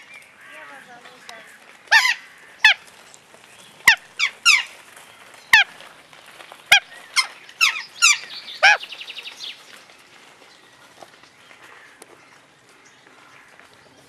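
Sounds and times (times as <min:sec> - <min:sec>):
parrot calling: 0:01.9 - 0:02.8, 0:03.8 - 0:04.7, 0:06.7 - 0:08.9.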